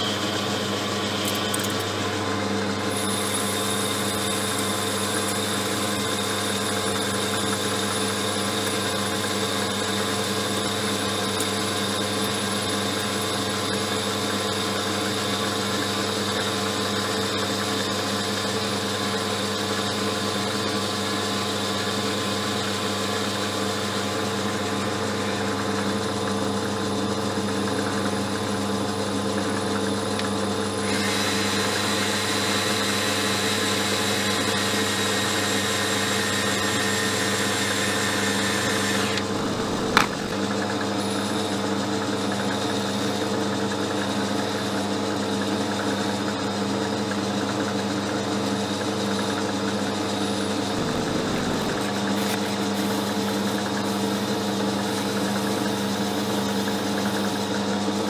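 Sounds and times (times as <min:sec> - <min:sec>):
metal lathe humming: 0:00.0 - 0:14.3, 0:29.6 - 0:41.4, 0:50.5 - 0:53.8.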